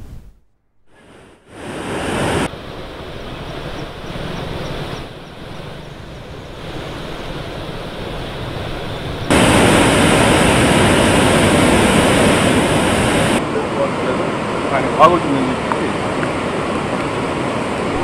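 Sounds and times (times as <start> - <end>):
floodwater rushing: 1.0 - 4.9, 5.5 - 18.0.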